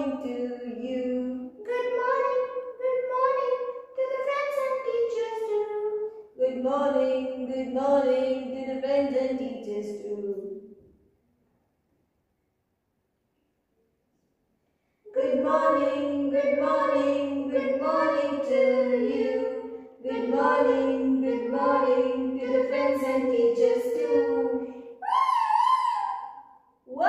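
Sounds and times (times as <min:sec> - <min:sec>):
person singing unaccompanied: 0:00.0 - 0:10.5, 0:15.1 - 0:25.9.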